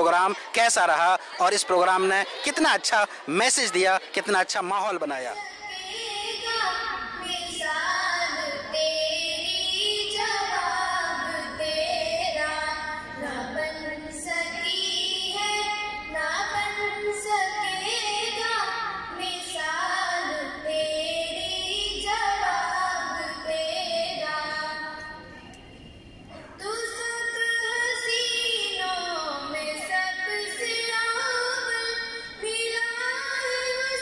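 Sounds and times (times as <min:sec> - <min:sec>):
girls singing into microphones: 0:05.3 - 0:25.3, 0:26.3 - 0:34.0.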